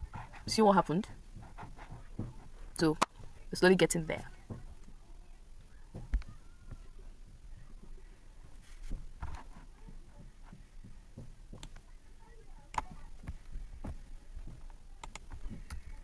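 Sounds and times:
keyboard and mouse clicks: 0:15.0 - 0:15.9.

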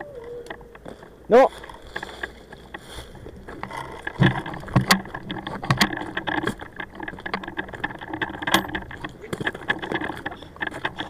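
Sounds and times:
clothing and gear rustling: 0:00.0 - 0:11.0
rifle knocks and clicks: 0:03.5 - 0:11.0.

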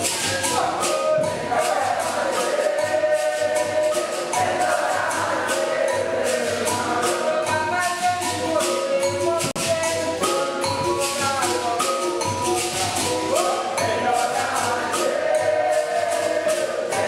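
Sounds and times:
jingling hand percussion: 0:00.0 - 0:17.0
people singing: 0:00.0 - 0:17.0
pitched instruments: 0:00.0 - 0:17.0.

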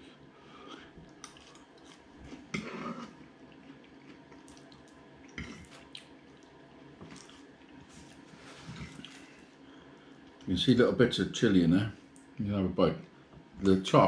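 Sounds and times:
wet chewing: 0:00.7 - 0:09.4.

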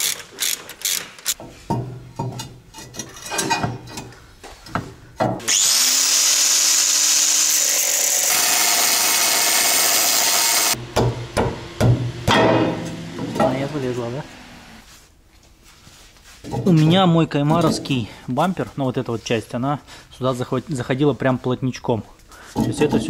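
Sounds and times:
hand tools clicking on bolts: 0:00.0 - 0:01.4
angle grinder cutting steel: 0:05.5 - 0:10.8.

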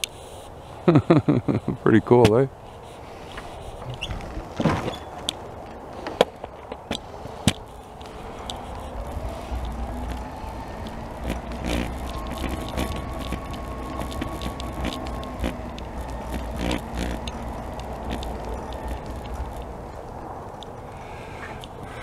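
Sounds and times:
tyres rumbling on asphalt: 0:00.0 - 0:22.0
scooter knocks and rattles: 0:04.4 - 0:05.4
electric motor whine: 0:07.6 - 0:20.2.

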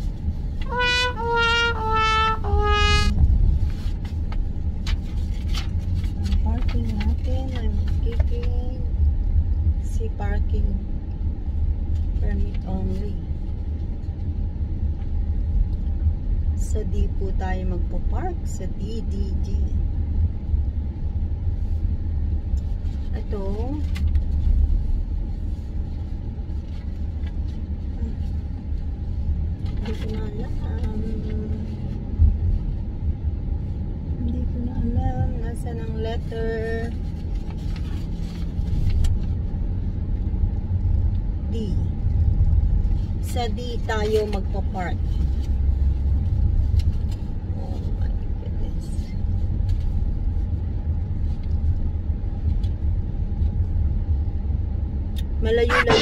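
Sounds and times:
car interior road and engine rumble: 0:00.0 - 0:56.0.

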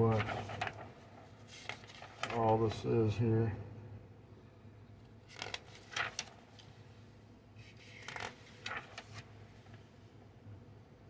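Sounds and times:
paper pages rustling: 0:00.0 - 0:02.6, 0:05.2 - 0:06.8, 0:07.6 - 0:09.8.

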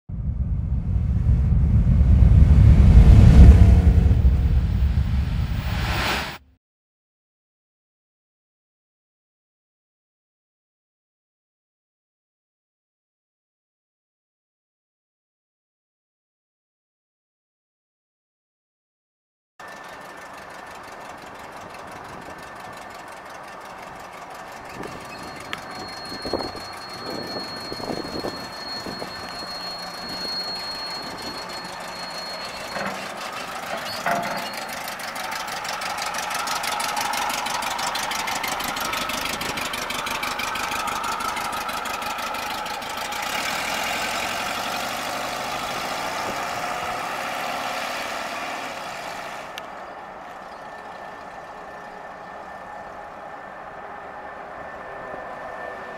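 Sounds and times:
car engine running: 0:00.1 - 0:06.1, 0:19.6 - 0:54.1
thin high whine: 0:00.3 - 0:06.4, 0:24.7 - 0:46.5.

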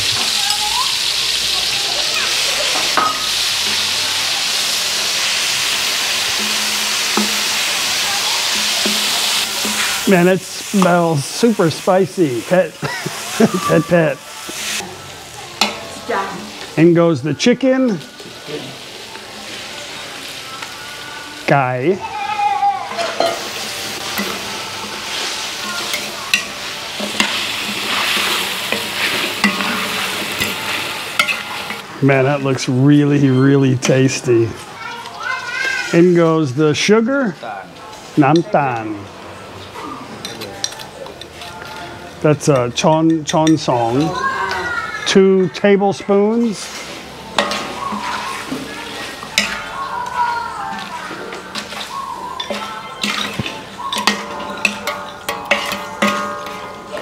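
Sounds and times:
paste sizzling in hot oil: 0:00.0 - 0:32.4, 0:42.4 - 0:57.0
metal ladle knocking wok: 0:02.8 - 0:10.0, 0:22.9 - 0:31.8, 0:47.3 - 0:49.7, 0:52.4 - 0:57.0
ladle clicking against wok: 0:51.5 - 0:57.0.

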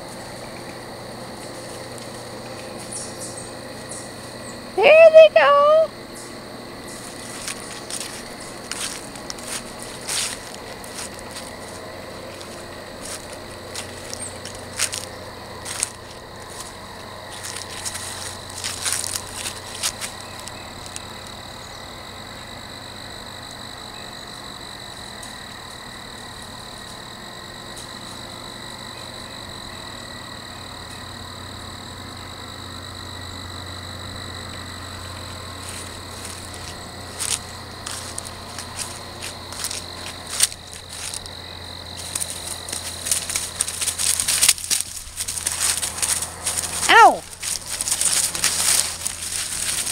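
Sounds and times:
faint low hum: 0:00.0 - 0:49.9
feet running through dry leaves: 0:06.8 - 0:21.1, 0:35.5 - 0:49.9.

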